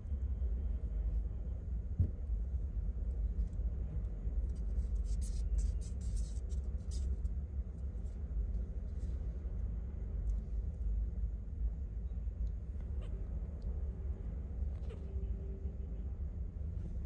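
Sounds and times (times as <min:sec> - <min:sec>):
low background rumble: 0:00.0 - 0:17.0
kittens scratching on towel: 0:03.3 - 0:09.8.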